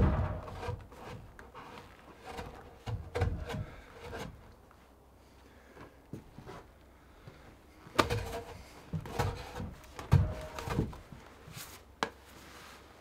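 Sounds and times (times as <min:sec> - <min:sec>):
hollow wooden knocks and thuds: 0:00.0 - 0:04.4, 0:07.9 - 0:11.2.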